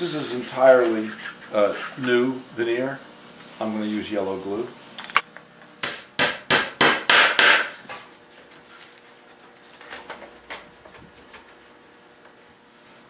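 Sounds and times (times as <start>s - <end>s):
hammer tapping on wood veneer: 5.8s - 7.7s.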